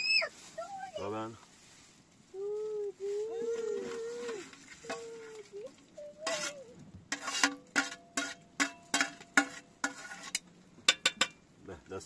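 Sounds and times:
high-pitched voice: 0.0 - 1.0, 2.3 - 6.8
scrape: 1.4 - 2.0, 6.2 - 10.4
metal ladle knocking on metal: 7.1 - 11.4.

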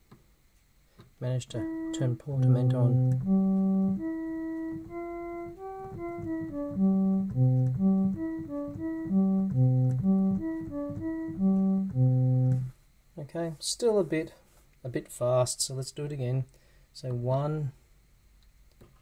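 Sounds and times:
person speaking: 1.2 - 5.7
synthesizer cello-like notes: 1.4 - 12.7
low synth bass notes: 1.5 - 12.7.

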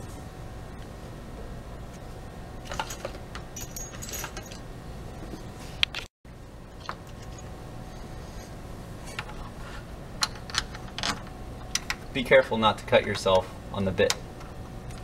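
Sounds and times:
small metal hardware clinking: 2.7 - 4.6.

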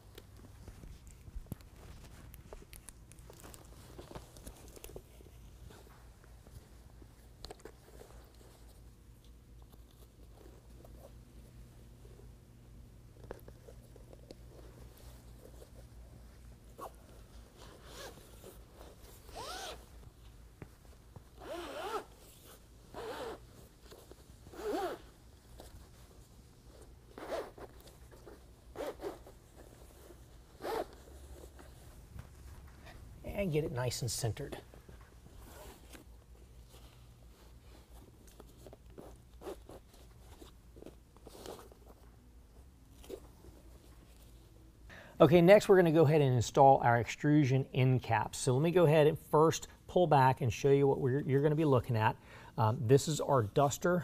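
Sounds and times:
rustling and crinkling of fabric: 0.0 - 12.4, 13.0 - 44.8
low room hum: 0.0 - 54.0.

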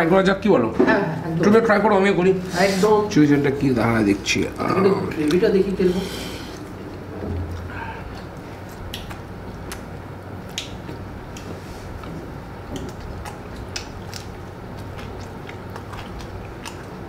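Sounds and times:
low room hum: 0.0 - 17.0
man chewing with wet smacks: 3.8 - 17.0
man licking fingers: 6.5 - 12.1, 12.7 - 17.0.

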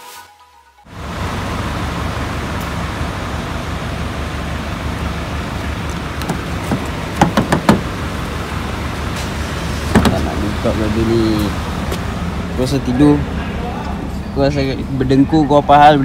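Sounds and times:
car door handle clicking: 6.2 - 7.9.

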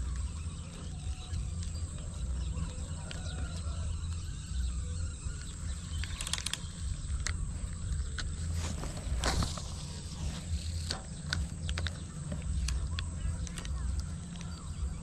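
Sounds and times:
wind buffeting microphone: 1.1 - 15.0
fishing reel clicking and rattling: 3.1 - 14.0.

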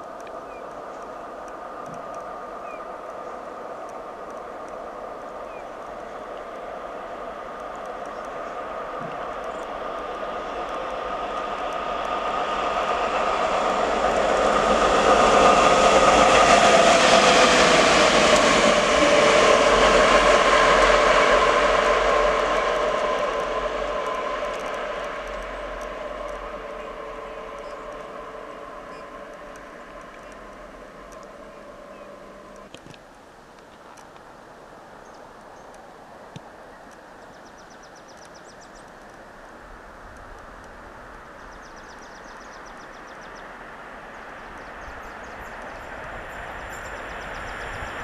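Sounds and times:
locomotive whining tones: 0.0 - 32.8
train wheels on rails: 0.0 - 48.0.

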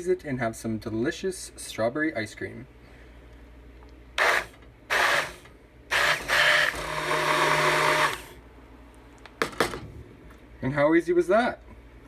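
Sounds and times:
immersion blender motor: 4.2 - 8.4.

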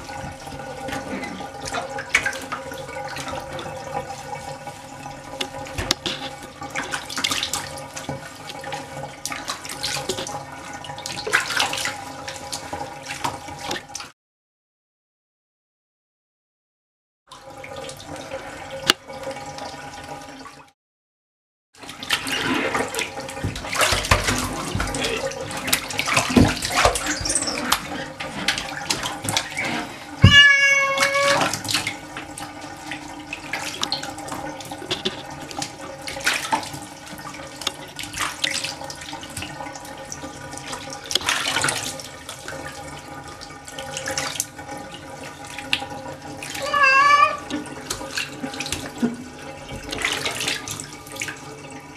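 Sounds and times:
bathtub water running: 0.0 - 14.2, 17.3 - 20.8, 21.8 - 51.9
kitten meowing: 30.2 - 31.5, 46.6 - 47.5.

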